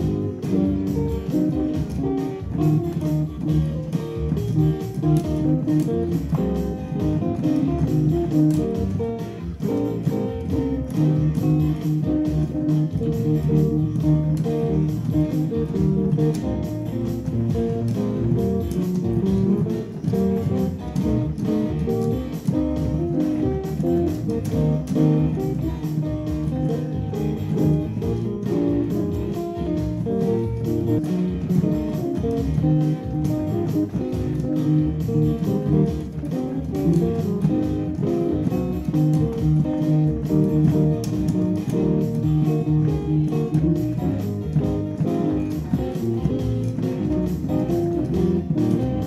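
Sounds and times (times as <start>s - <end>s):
electronic keyboard guitar voice: 0.0s - 49.0s
steady beat: 0.0s - 49.0s.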